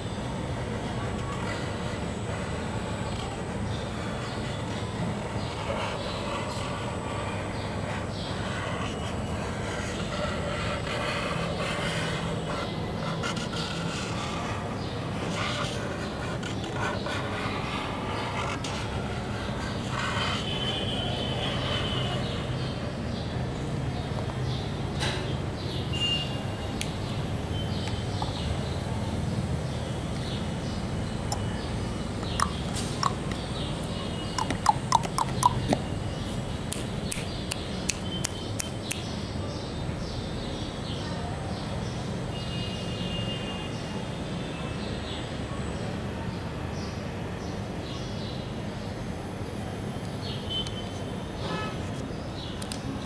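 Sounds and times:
faint high chirps and ticks: 32.2 - 35.8.

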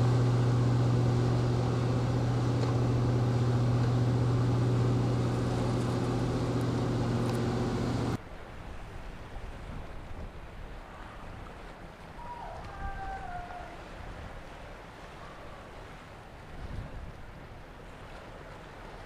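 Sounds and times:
marine engine hum: 0.0 - 9.0, 10.7 - 19.0
water noise: 0.0 - 19.0
wind: 0.0 - 19.0.

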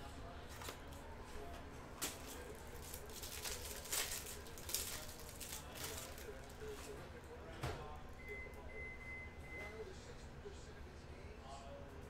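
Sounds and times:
plastic wrapper crinkling and tearing: 2.0 - 6.8.

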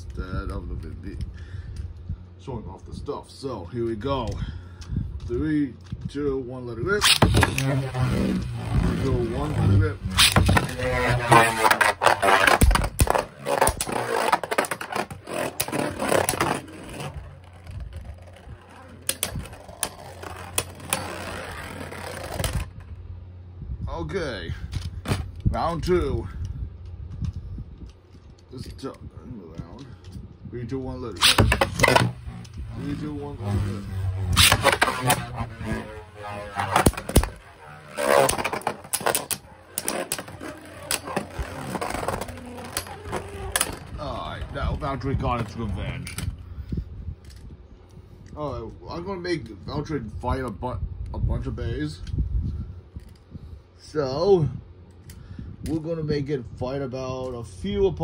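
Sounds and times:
tops whirring on plastic floor: 7.0 - 22.9, 31.2 - 44.5.

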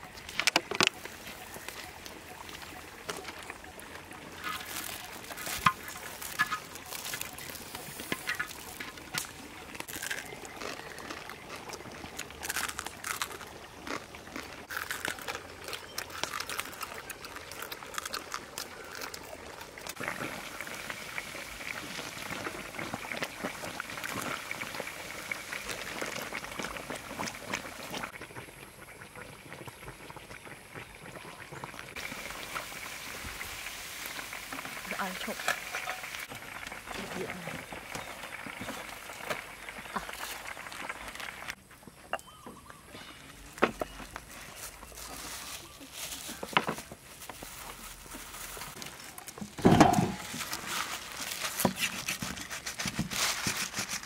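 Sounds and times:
pops and crackles: 0.0 - 41.6, 46.0 - 54.0
liquid bubbling in a pan: 17.0 - 42.1.

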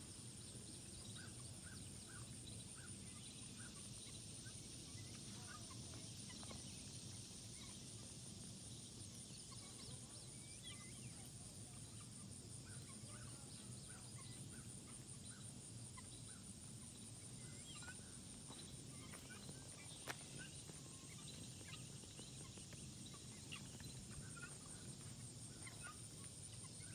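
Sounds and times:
faint bird chirps: 8.7 - 26.9.

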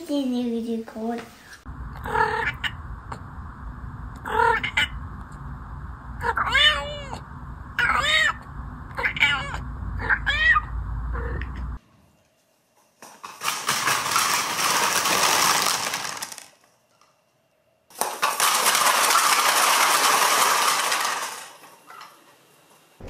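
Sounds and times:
cardboard tubes clattering on wooden floor: 13.0 - 16.6, 17.9 - 22.1.

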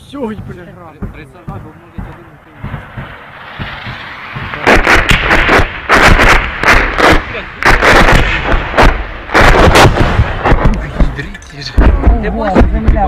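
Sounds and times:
rapid heavy rocket blasts: 0.0 - 13.0
rising rumble: 0.4 - 9.3.

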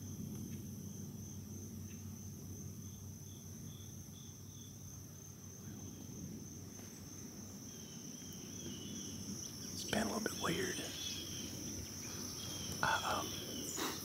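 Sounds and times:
crickets trilling: 0.0 - 14.0
short insect chirps: 0.0 - 14.0.

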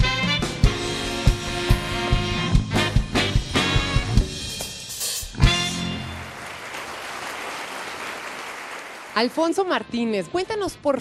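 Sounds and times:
jazz saxophone ensemble with drums: 0.0 - 6.3
audience applause: 6.0 - 9.4.

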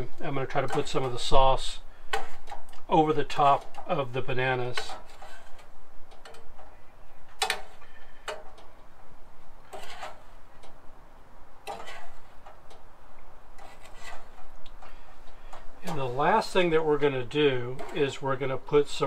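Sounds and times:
spoon scraping a pan: 0.4 - 2.6, 3.2 - 6.5, 9.6 - 10.6, 11.6 - 12.7, 13.5 - 16.6.

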